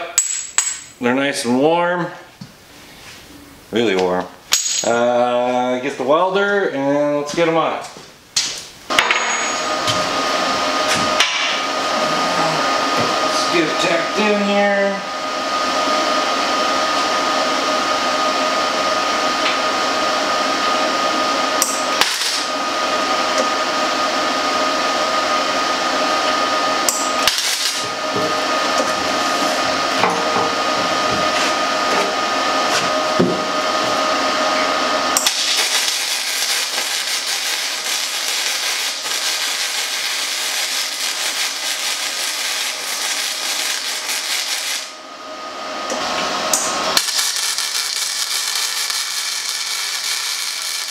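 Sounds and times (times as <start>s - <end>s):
motor whine: 9.0s - 50.9s
machine hiss: 46.6s - 50.9s.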